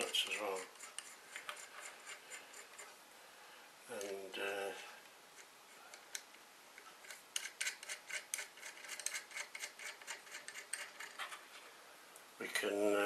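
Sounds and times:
nut spinning on threaded rod: 0:07.0 - 0:11.2.

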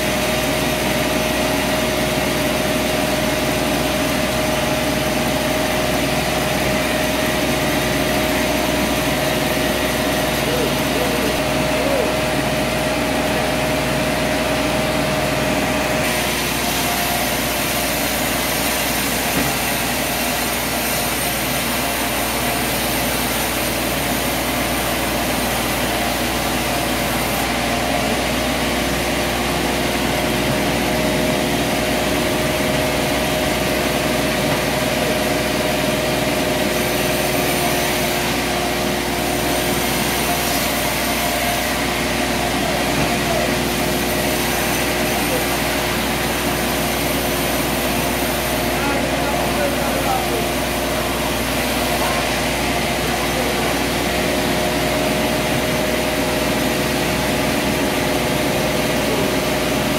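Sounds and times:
band sawmill drone: 0:00.0 - 0:59.9
saw blade cutting timber: 0:16.0 - 0:59.9.

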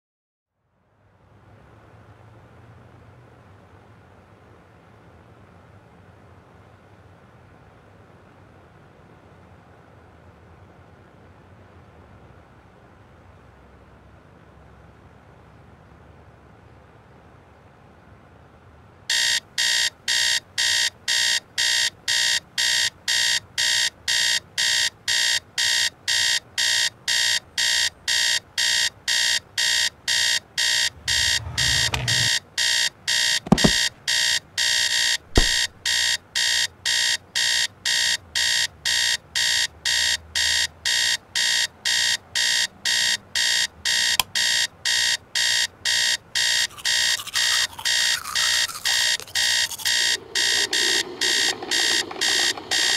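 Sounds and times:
phone alarm beeping: 0:19.1 - 0:52.9.

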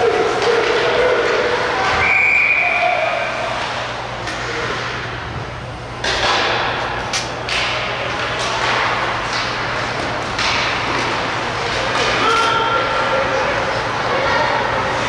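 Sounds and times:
puck and sticks hitting boards: 0:00.0 - 0:01.6, 0:06.0 - 0:12.8
crowd and rink hiss: 0:00.0 - 0:05.0, 0:07.7 - 0:15.0.

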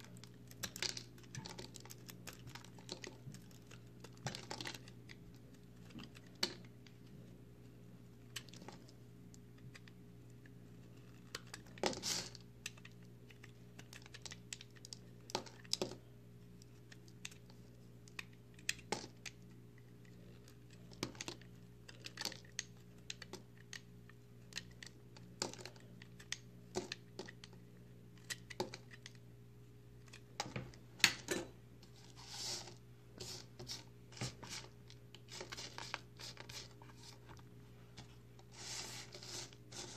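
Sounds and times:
knife cutting crumbly soap: 0:00.0 - 0:06.8
faint steady hum: 0:00.0 - 0:39.9.

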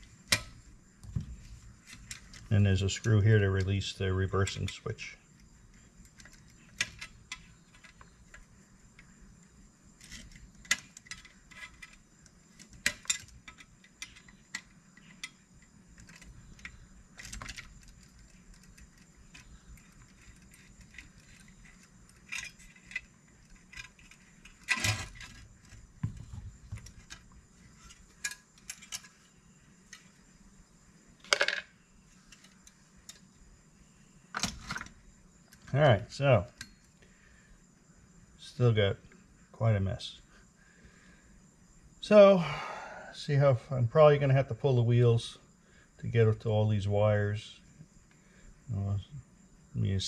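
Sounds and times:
small metallic clicks and taps: 0:10.0 - 0:29.1
metal parts clattering: 0:19.8 - 0:25.4.

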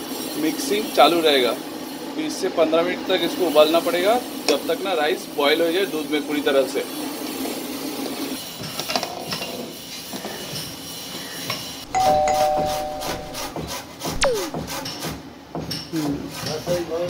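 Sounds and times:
two-note chime: 0:11.9 - 0:13.5.

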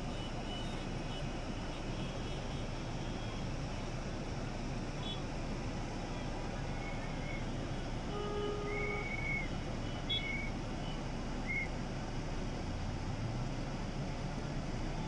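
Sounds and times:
street traffic noise: 0:00.0 - 0:15.0
short horn-like tone: 0:08.1 - 0:09.2.

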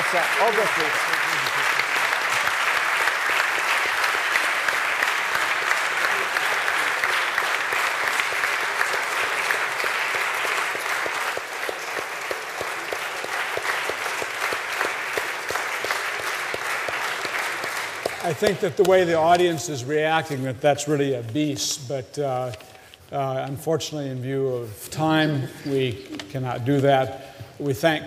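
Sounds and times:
audience applauding: 0:00.0 - 0:20.1.

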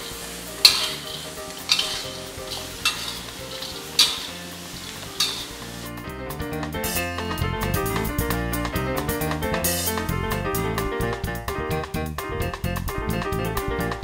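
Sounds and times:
spatula scraping frying pan: 0:00.0 - 0:05.9
sizzling in frying pan: 0:00.0 - 0:10.2.

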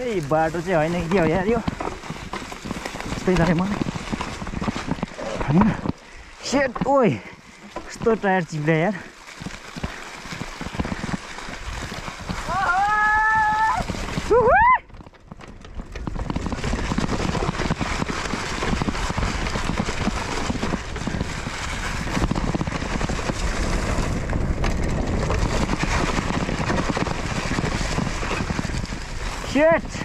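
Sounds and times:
mountain bike rattle and tyre noise: 0:00.0 - 0:30.0
wind buffeting microphone: 0:10.7 - 0:30.0.

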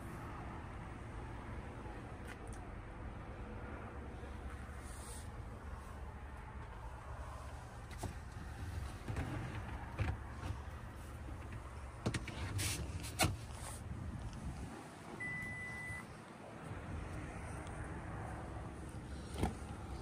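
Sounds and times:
car road rumble: 0:00.0 - 0:20.0.

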